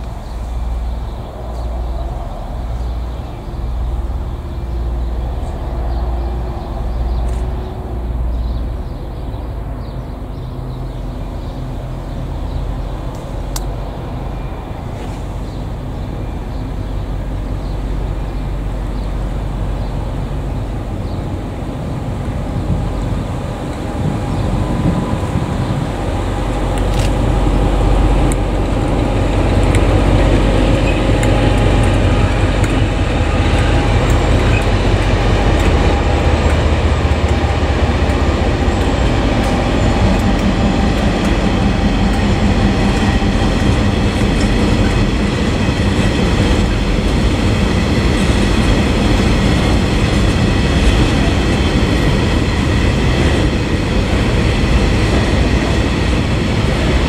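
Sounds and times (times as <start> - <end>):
diesel locomotive engine drone: 0.0 - 57.0
wagon wheels rumbling: 22.2 - 57.0
wheels clicking over rail joints: 22.6 - 55.9.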